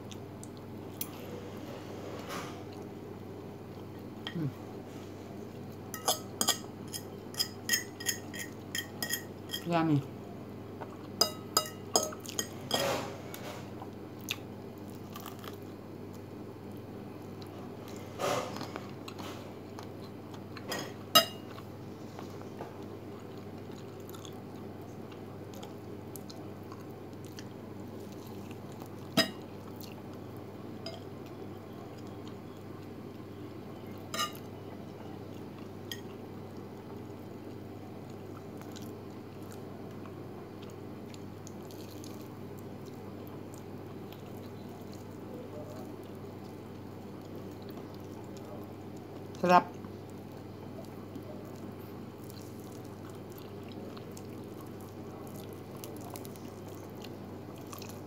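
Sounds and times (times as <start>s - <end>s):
metal fork clinking on plate: 6.0s - 9.7s, 34.2s - 34.4s
chewing: 13.8s - 16.3s, 21.5s - 30.2s, 35.3s - 58.0s.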